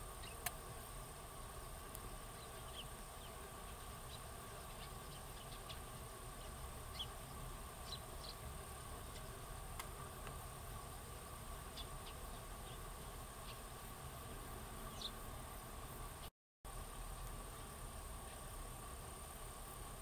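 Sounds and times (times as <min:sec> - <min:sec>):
sparrows chirping: 0:00.0 - 0:00.5, 0:01.2 - 0:15.6
insect drone: 0:00.0 - 0:20.0.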